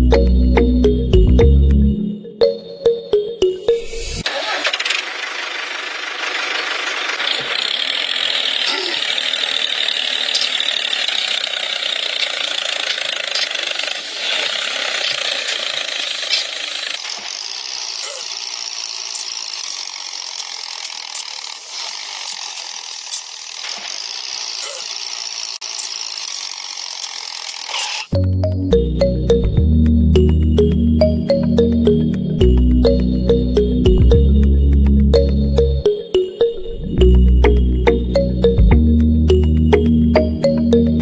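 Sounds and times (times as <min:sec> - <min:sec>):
toy electric motor and gearbox: 0:04.2 - 0:28.2.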